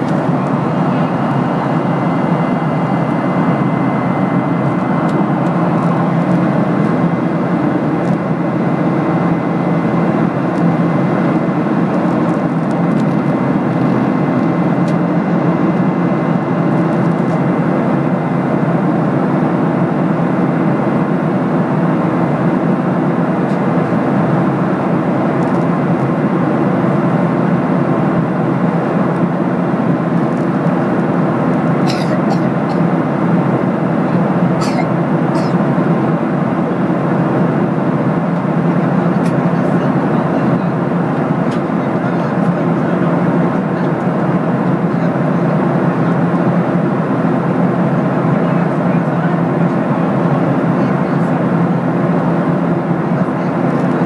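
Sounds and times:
airflow rush in airplane cabin: 0.0 - 54.0
jet engines droning: 0.0 - 54.0.

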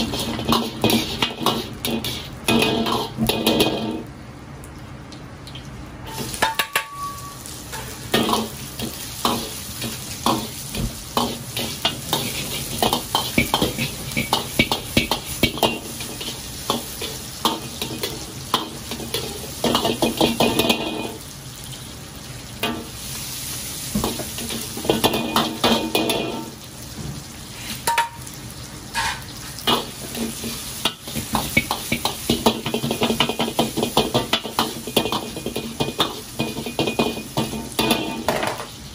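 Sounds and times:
oil sizzling in a wok: 0.0 - 38.9
metal ladle scraping a wok: 28.9 - 29.3.

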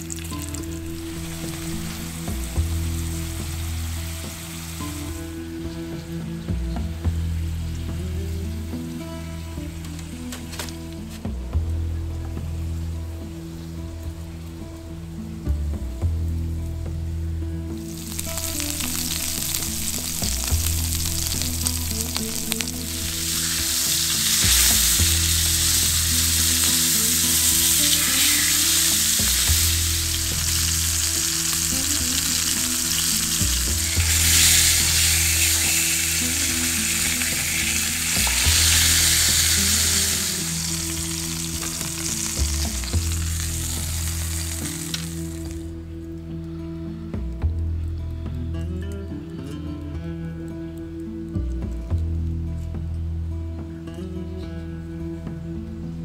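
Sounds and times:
steaks sizzling in frying pan: 17.9 - 45.5.

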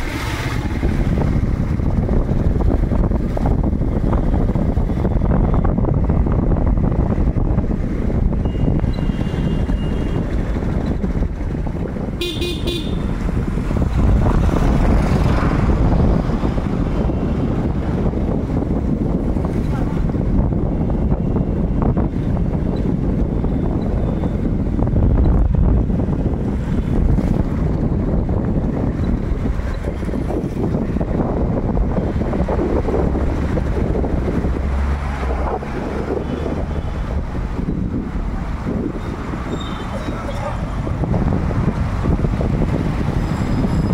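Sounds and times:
road traffic rumble: 0.0 - 43.9
vehicle horn toots: 12.2 - 13.1.

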